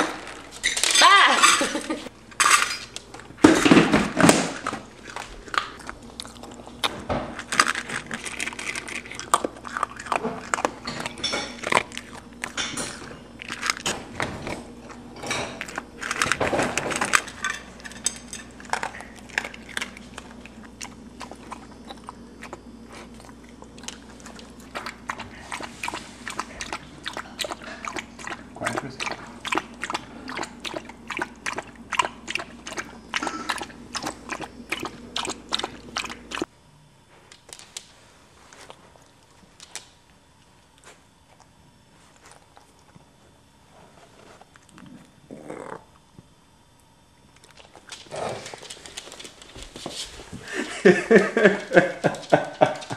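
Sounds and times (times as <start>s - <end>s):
dog crunching dry kibble: 2.8s - 36.5s, 47.3s - 50.1s.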